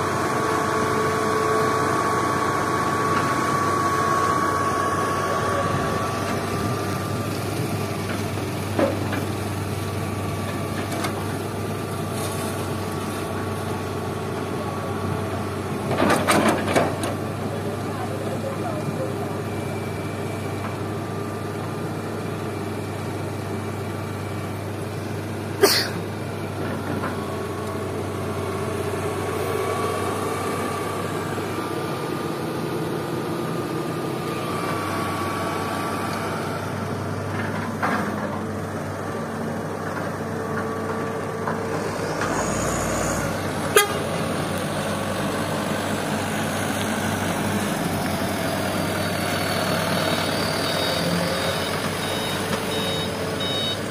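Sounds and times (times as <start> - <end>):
excavator diesel engine: 0.0 - 53.9
hydraulic whine: 41.2 - 44.2.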